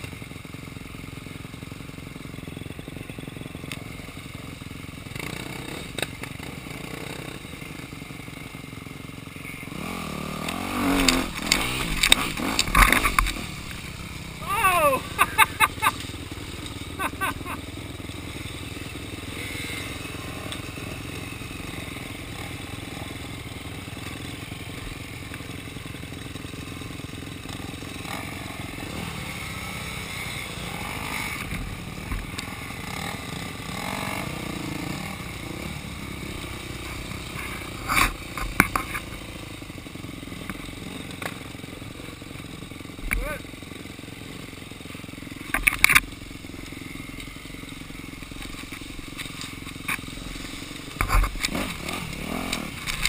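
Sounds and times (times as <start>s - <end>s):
dirt bike engines idling: 0.0s - 53.0s
engine revving bursts: 9.7s - 17.6s, 51.3s - 53.0s.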